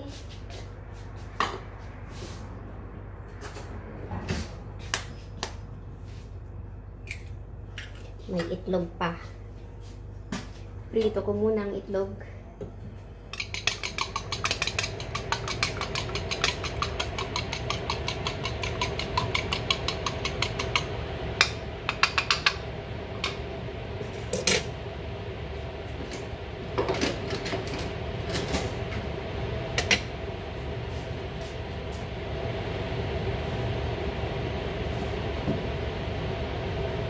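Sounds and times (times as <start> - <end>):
steady low hum: 0.0 - 37.0
eggs being beaten in a bowl: 13.4 - 20.9.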